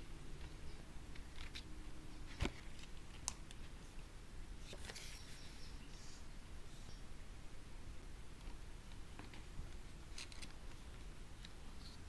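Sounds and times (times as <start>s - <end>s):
laptop handling noise: 0.4s - 3.8s, 8.4s - 12.0s
soft clicks and rustles: 8.4s - 12.0s.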